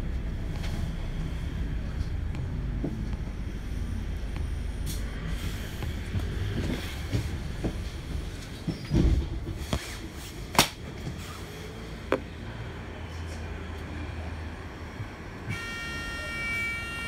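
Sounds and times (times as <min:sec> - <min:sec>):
bus engine rumbling: 0:00.0 - 0:17.0
bus body rattling and knocking: 0:05.4 - 0:11.3.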